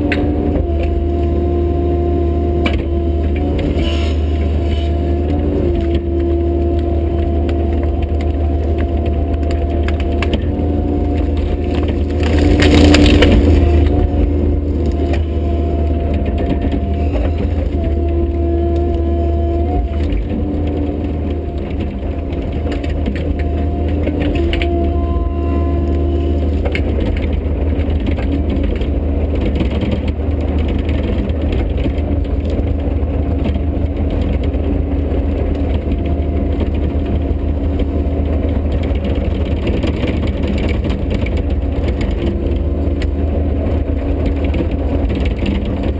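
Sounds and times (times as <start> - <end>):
diesel engine running: 0.0 - 45.9
hydraulic whine: 0.0 - 45.9
tree cracking and splintering: 5.8 - 32.6.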